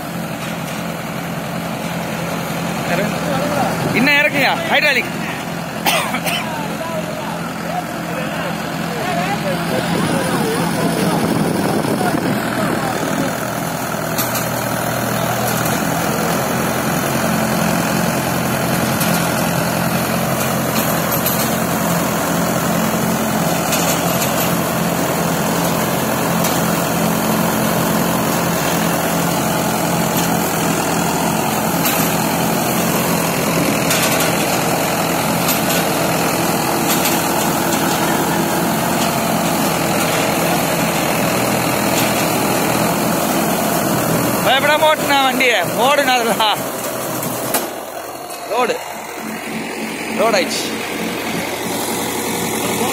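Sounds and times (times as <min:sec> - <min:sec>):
tractor engine and baler running: 0:00.0 - 0:52.9.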